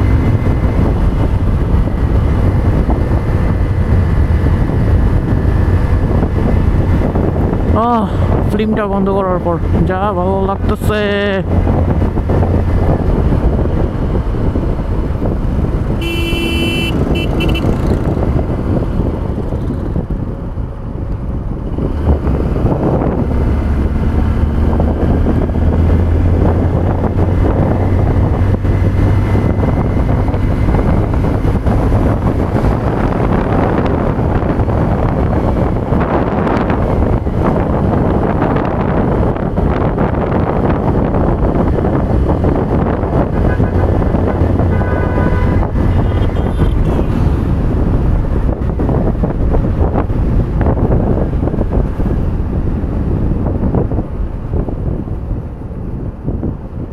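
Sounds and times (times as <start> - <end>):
motorcycle engine cruising: 0.0 - 8.7, 9.3 - 56.9
wind rush on microphone: 0.0 - 56.9
vehicle horn toots: 16.0 - 17.8, 43.4 - 43.8, 44.6 - 46.9.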